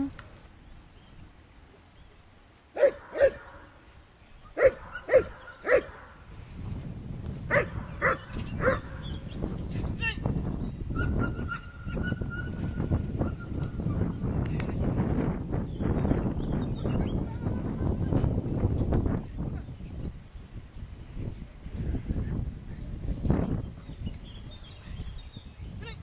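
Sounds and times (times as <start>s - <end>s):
dog barking: 2.8s - 3.7s, 4.6s - 6.2s, 7.5s - 9.0s
wind rumble on microphone: 4.4s - 26.0s.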